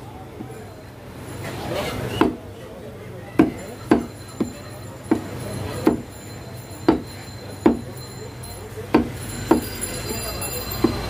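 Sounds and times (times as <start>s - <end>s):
cleaver chopping meat on wood: 2.2s - 2.4s, 3.4s - 6.1s, 6.9s - 7.9s, 8.9s - 9.7s.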